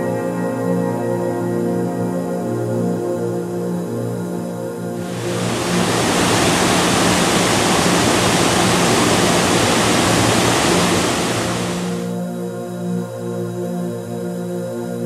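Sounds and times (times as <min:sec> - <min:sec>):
river water rushing over rocks: 0:05.0 - 0:12.1.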